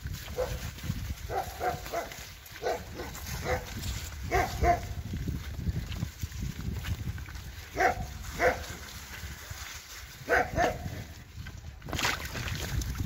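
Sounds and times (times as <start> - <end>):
bicycle riding through slush: 0.0 - 13.0
small dog barking: 0.3 - 0.6, 1.3 - 3.7, 4.3 - 5.0, 7.7 - 8.7, 10.3 - 10.8.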